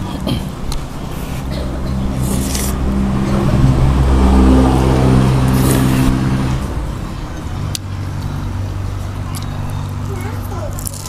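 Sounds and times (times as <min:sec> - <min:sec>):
vehicle engine passing by: 0:00.0 - 0:10.8
noodles being slurped: 0:02.2 - 0:02.8, 0:05.5 - 0:06.1.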